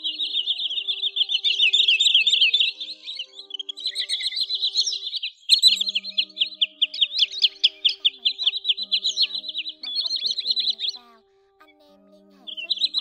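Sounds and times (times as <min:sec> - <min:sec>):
sandpipers chattering calls: 0:00.0 - 0:11.2, 0:12.3 - 0:13.0
faint music: 0:00.0 - 0:13.0.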